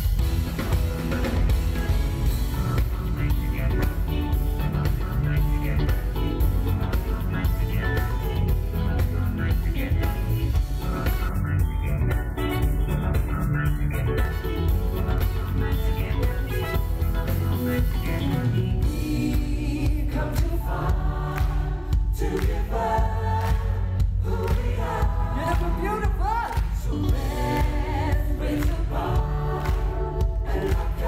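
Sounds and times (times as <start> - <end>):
live band with drums and bass: 0.0 - 31.0.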